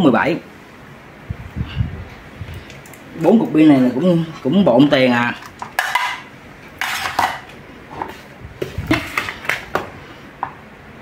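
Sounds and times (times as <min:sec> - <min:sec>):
power adapters clattering on tile: 0:05.4 - 0:09.9.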